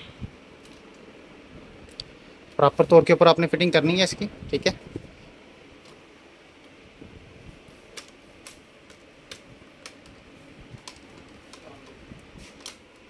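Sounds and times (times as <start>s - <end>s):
plastic clips snapping: 7.9s - 13.0s.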